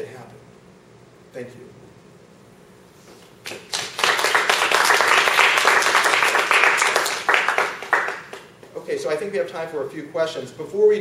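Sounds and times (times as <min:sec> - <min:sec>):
audience applauding: 0:03.5 - 0:08.6.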